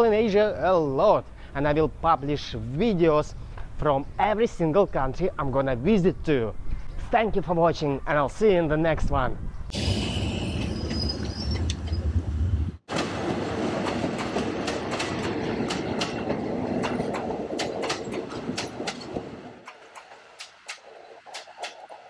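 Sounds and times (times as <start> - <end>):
passenger train rolling past: 9.7 - 22.0
wheels clicking over rail joints: 12.9 - 22.0.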